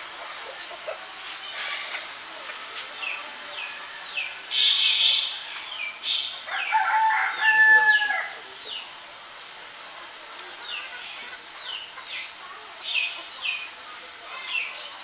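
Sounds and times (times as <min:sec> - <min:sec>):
small birds chirping: 0:02.9 - 0:06.9, 0:08.5 - 0:09.0, 0:10.3 - 0:15.0
rooster crowing: 0:06.5 - 0:08.4.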